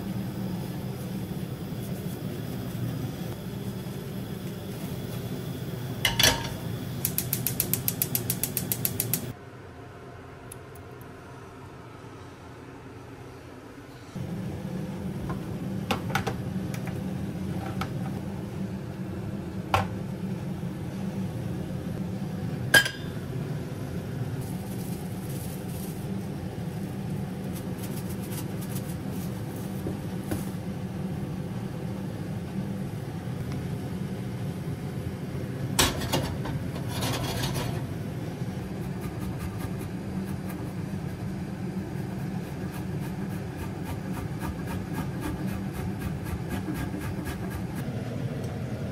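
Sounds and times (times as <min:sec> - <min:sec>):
steady low hum: 0:00.0 - 0:48.9
metal pans clinking on stovetop: 0:06.1 - 0:06.6, 0:22.8 - 0:23.2.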